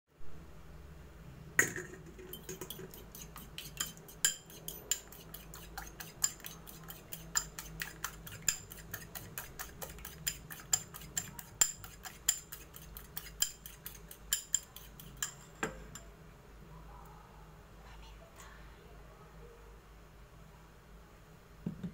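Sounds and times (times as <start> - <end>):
fork clinking against ceramic bowl: 2.2 - 16.1.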